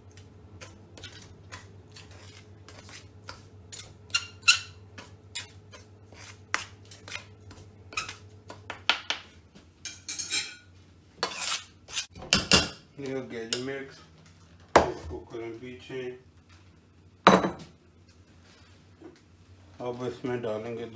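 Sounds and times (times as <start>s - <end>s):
utensil scraping metal bowl: 0.6s - 7.3s, 11.2s - 12.1s.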